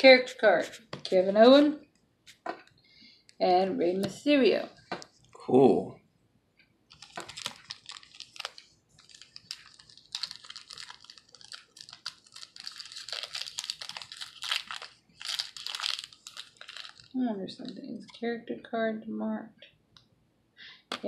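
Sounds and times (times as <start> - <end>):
cards and packaging crinkling: 0.0 - 1.6, 6.9 - 18.2.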